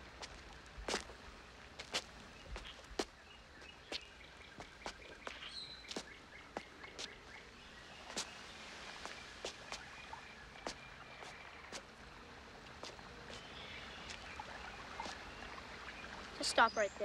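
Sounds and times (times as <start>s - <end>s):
footsteps on stone steps: 0.0s - 7.4s, 8.0s - 11.9s, 12.6s - 14.3s
birds chirping: 0.0s - 17.0s.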